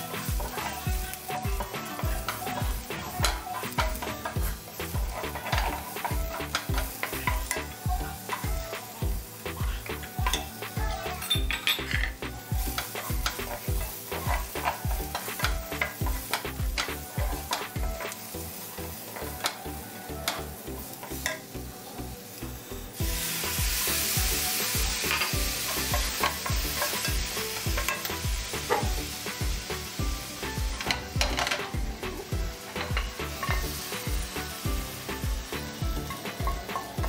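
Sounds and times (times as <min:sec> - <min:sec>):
wooden spatula scraping a pan: 0:00.0 - 0:07.7, 0:11.8 - 0:19.6
onions sizzling in oil: 0:00.0 - 0:37.0
spatula clicking against pan: 0:01.6 - 0:04.5, 0:05.3 - 0:08.5, 0:12.7 - 0:18.2, 0:19.2 - 0:19.6, 0:20.2 - 0:21.4.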